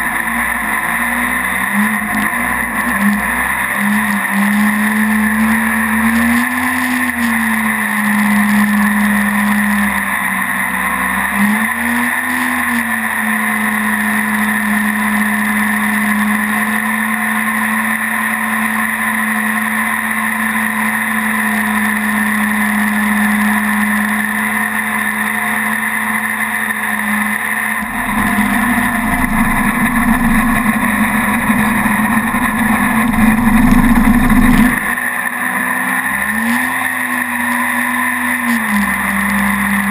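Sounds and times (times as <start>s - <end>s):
boat engine running at speed: 0.0s - 39.9s
rough low rumble: 27.8s - 34.9s.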